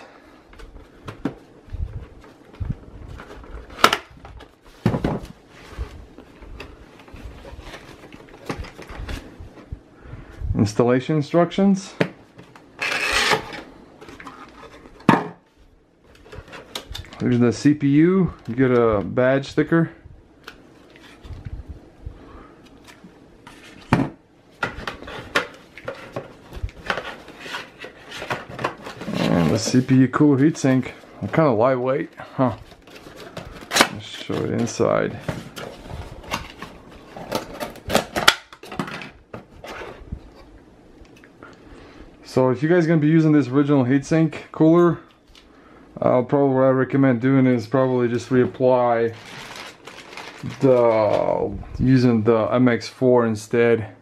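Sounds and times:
plastic packaging rustling: 24.6 - 38.9, 47.7 - 51.4.

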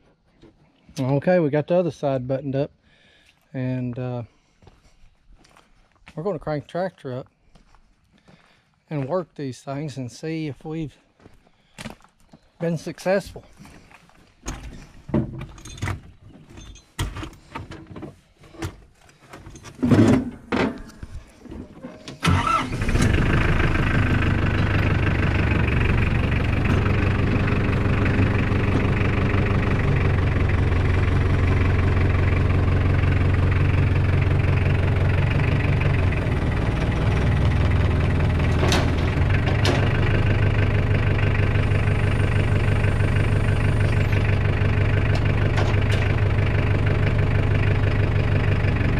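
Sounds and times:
tractor engine starting and idling: 14.5 - 48.9.

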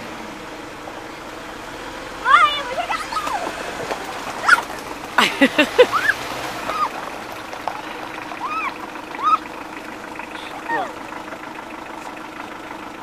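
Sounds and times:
people crying out: 4.4 - 7.0, 7.9 - 9.5, 10.4 - 11.0
people laughing: 4.4 - 7.0.

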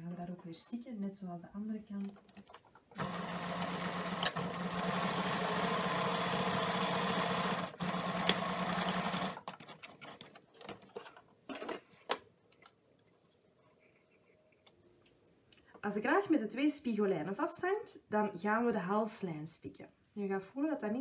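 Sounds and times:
sewing machine stitching: 2.2 - 11.1.

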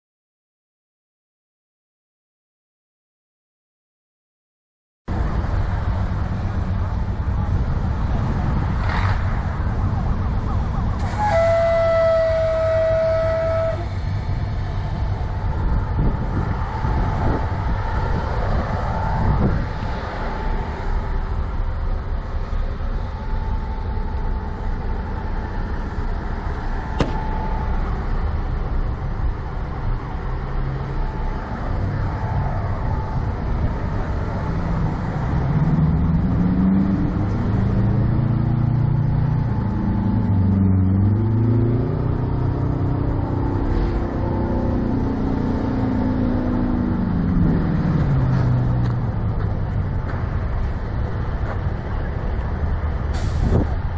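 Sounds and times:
vehicle engines running: 5.1 - 53.9
engine revving: 8.6 - 9.6, 34.0 - 49.3
steady background noise: 13.6 - 53.9.

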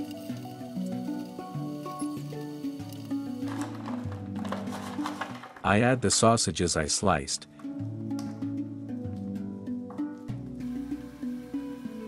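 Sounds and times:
instrumental music with held notes: 7.5 - 12.0.

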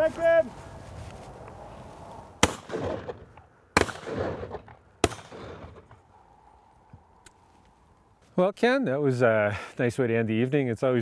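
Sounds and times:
shotgun shots with echo: 2.4 - 6.0.

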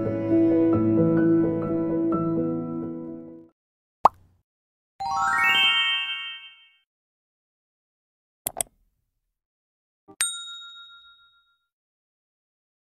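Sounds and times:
rising chime notes: 5.0 - 6.7
mouse clicks: 8.5 - 8.8
bell ding: 10.2 - 11.7.

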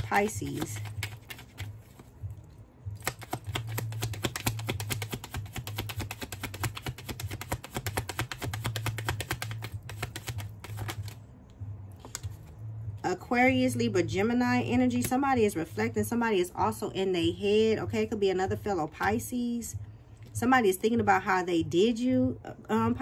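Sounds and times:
cards being shuffled: 0.0 - 11.2, 12.0 - 12.6.

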